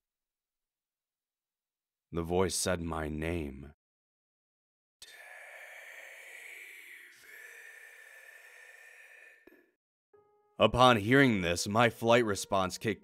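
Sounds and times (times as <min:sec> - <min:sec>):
person whispering: 0:05.0 - 0:09.8.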